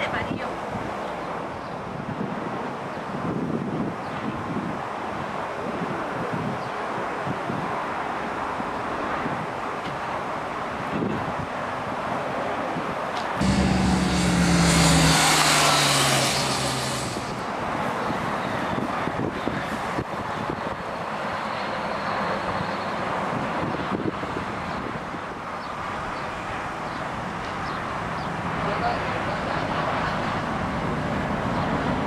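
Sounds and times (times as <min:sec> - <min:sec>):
motorcycle engine idling: 0:13.4 - 0:14.9.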